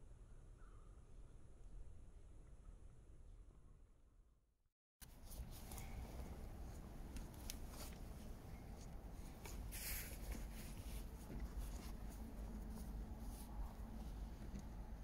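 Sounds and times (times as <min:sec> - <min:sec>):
scratchy rustling: 0:05.0 - 0:15.0.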